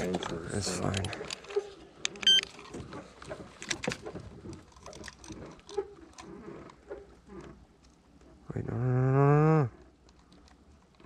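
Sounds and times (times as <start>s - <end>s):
handling clicks and knocks: 0.0s - 7.1s.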